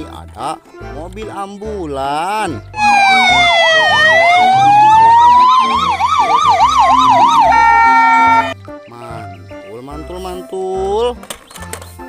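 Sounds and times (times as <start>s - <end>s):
ambulance siren wailing: 2.8s - 8.6s
siren fast yelp warble: 2.8s - 8.6s.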